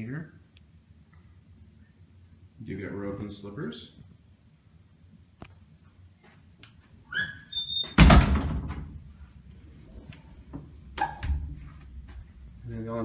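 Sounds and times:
door squeak: 0:07.1 - 0:08.6, 0:11.0 - 0:11.6
door closing thud: 0:07.8 - 0:09.0.

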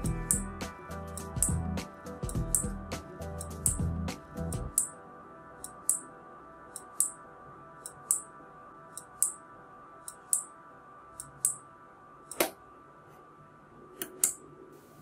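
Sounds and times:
faint background music: 0:00.0 - 0:15.0
switch click: 0:12.3 - 0:12.6, 0:14.0 - 0:14.4.

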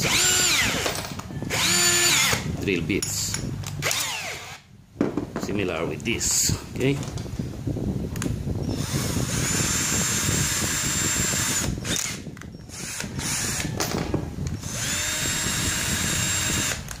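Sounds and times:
cordless drill motor whining: 0:00.0 - 0:02.5, 0:03.8 - 0:04.6, 0:08.6 - 0:13.8, 0:14.4 - 0:17.0
drill and bits rattling: 0:00.0 - 0:02.5, 0:03.1 - 0:04.6, 0:08.7 - 0:17.0.

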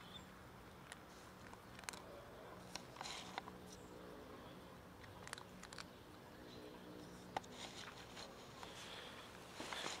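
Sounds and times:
kitten crunching dry kibble: 0:00.8 - 0:03.6, 0:05.0 - 0:05.9.

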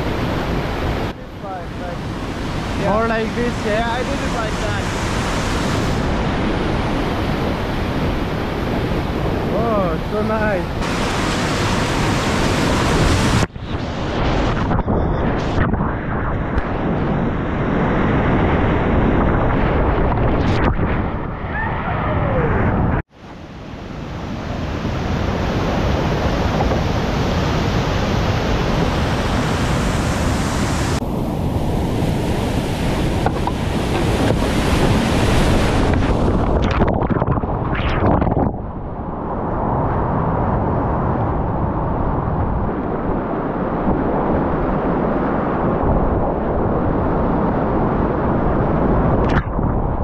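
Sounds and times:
whitewater rapids rushing: 0:01.4 - 0:06.2, 0:09.5 - 0:13.5.

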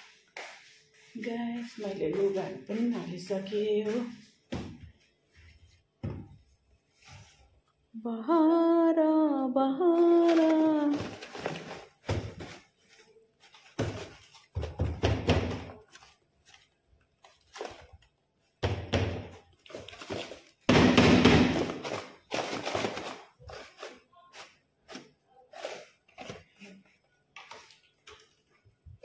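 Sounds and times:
rustling and scraping: 0:00.0 - 0:07.8, 0:10.2 - 0:18.2
thuds and knocks: 0:06.0 - 0:06.4.

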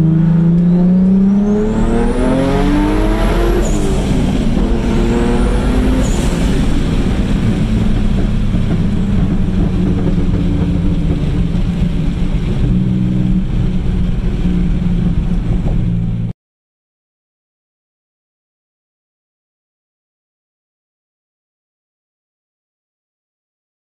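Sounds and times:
car engine running loud: 0:00.0 - 0:16.3
wind noise: 0:00.0 - 0:16.3.

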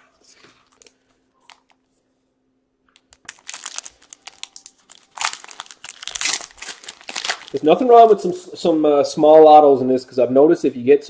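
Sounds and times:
plastic wrapper crinkling and tearing: 0:00.6 - 0:01.8, 0:03.0 - 0:08.2.

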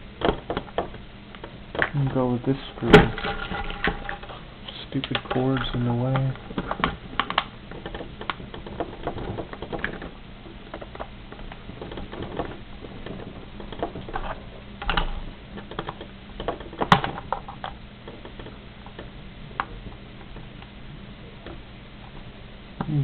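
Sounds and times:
plastic controller shifting on wood: 0:05.0 - 0:20.5.

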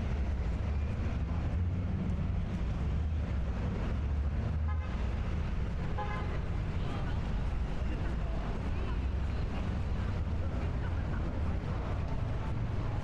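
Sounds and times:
traffic rumble: 0:00.0 - 0:13.0.

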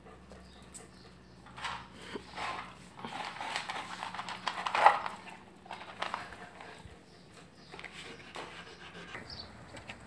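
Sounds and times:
puppy sniffing and breathing: 0:06.0 - 0:09.6.

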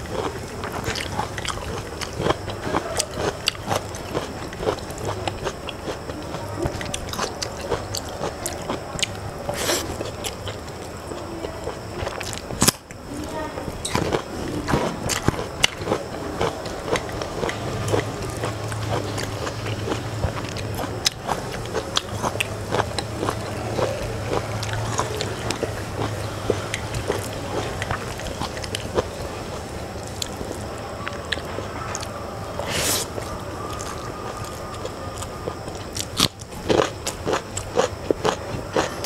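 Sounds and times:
low steady hum: 0:00.0 - 0:39.0
chewing and lip smacks: 0:13.9 - 0:29.2.

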